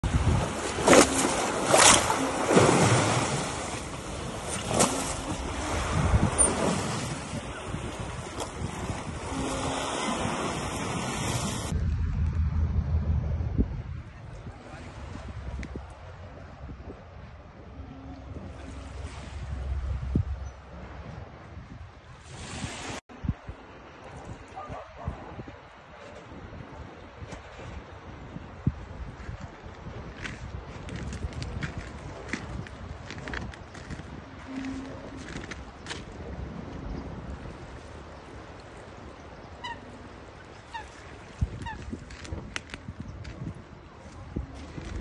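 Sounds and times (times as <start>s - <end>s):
loud water splashes: 0.0s - 11.8s
water lapping against shore: 0.0s - 11.8s, 14.2s - 45.0s
wind buffeting microphone: 0.0s - 45.0s.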